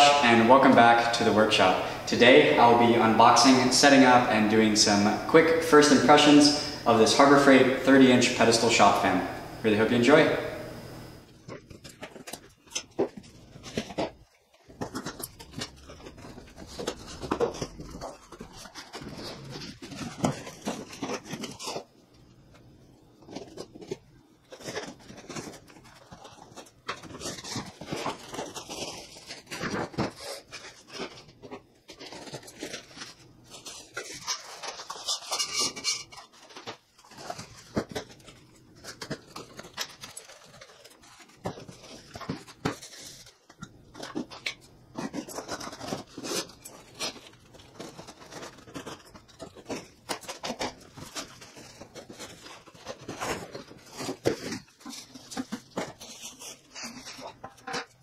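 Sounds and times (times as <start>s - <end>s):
plastic wrap crinkling: 10.9s - 58.0s
cardboard boxes rustling: 11.4s - 21.9s, 23.3s - 58.0s.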